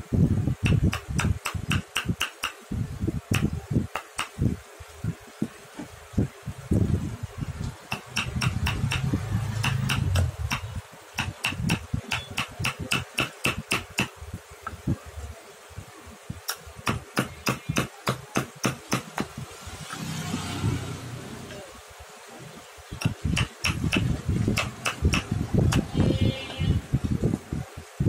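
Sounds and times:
chisel tapping wood: 0.7 - 2.6, 3.4 - 4.4, 7.9 - 14.2, 16.5 - 19.3, 23.0 - 25.9.

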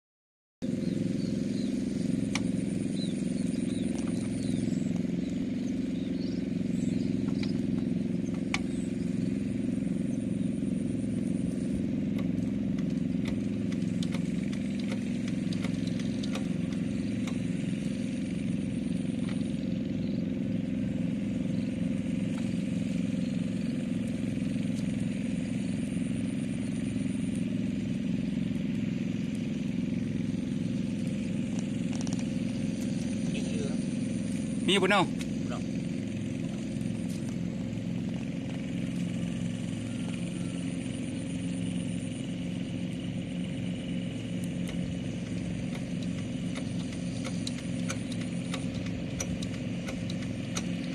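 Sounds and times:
diesel engine running: 0.6 - 50.9
sharp clicks: 12.1 - 17.5, 44.4 - 50.9.

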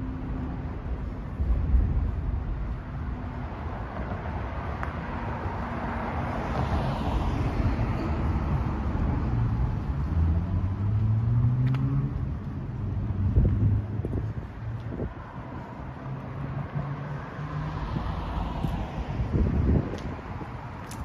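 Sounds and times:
cars driving past: 0.0 - 21.0
engine speeding up: 8.6 - 13.9.

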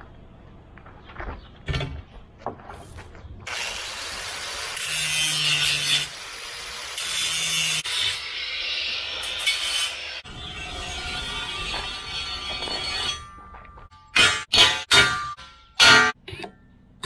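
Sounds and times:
angle grinder grinding: 3.5 - 13.1.

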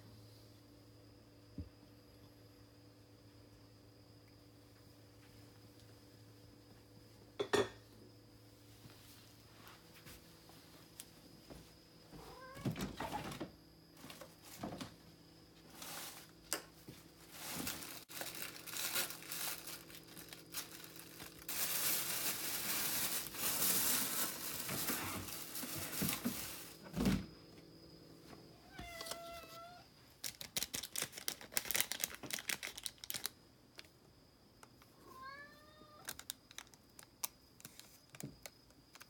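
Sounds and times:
cat meowing: 12.2 - 12.8, 28.6 - 29.8, 35.0 - 36.0
plastic tubes crinkling and tearing: 17.4 - 26.1, 30.2 - 33.3.

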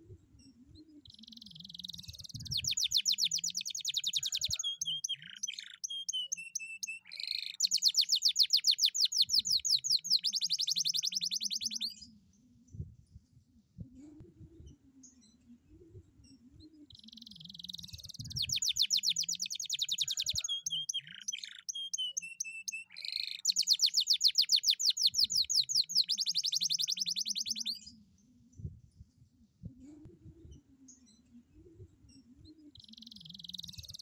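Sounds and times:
canary singing trills: 0.8 - 12.0, 16.9 - 28.0, 32.2 - 34.0.

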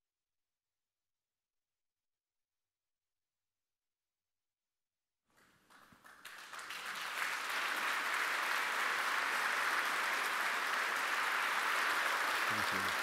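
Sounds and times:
audience applause: 5.4 - 13.0.

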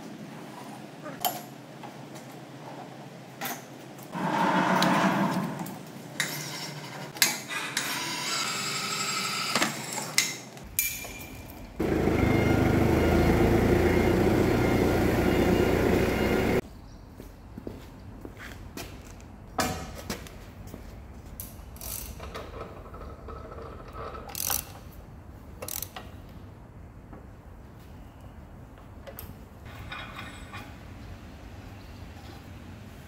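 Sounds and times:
metal scraping: 4.1 - 7.2
loud machine noise: 4.2 - 5.9, 11.8 - 16.6.

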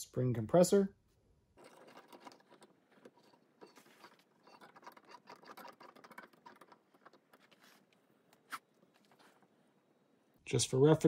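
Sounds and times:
hands handling metal parts: 1.6 - 9.6.

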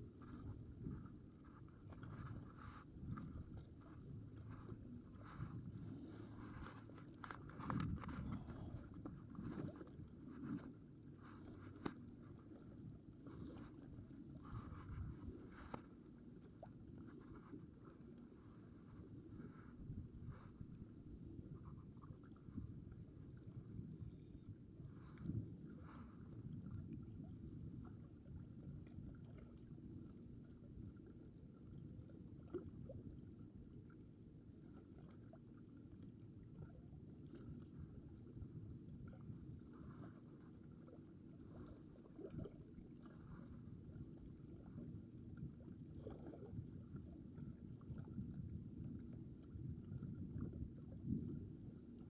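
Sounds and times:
wind rumble on microphone: 0.0 - 52.0
faint ticks: 14.7 - 16.0, 23.3 - 26.1.

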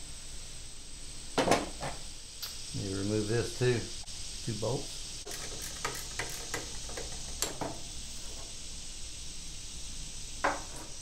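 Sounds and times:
ratchet wrench clicking: 5.3 - 7.4.

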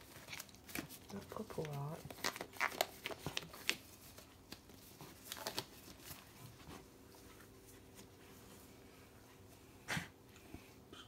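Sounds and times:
rustling and handling noises: 0.0 - 10.9
faint steady hum: 0.0 - 11.0.

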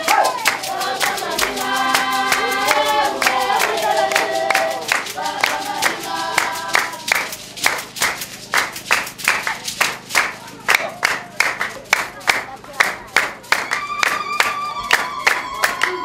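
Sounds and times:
group singing: 0.0 - 8.2
hand-clapping: 0.0 - 16.0.

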